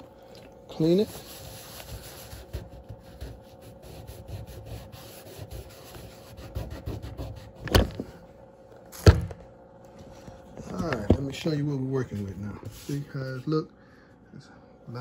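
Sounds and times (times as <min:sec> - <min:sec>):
paper towel rubbing plastic: 0:00.7 - 0:07.8, 0:11.9 - 0:13.4.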